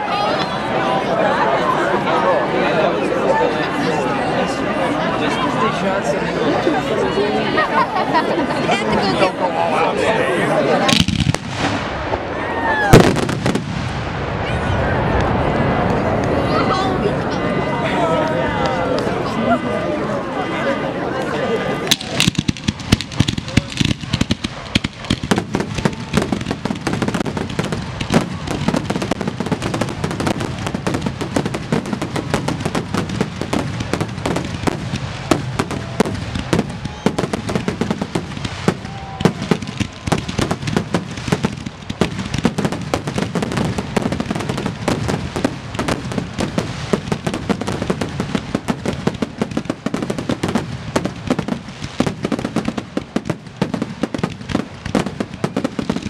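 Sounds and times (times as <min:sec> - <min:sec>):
fireworks shells bursting: 0:21.9 - 0:56.0.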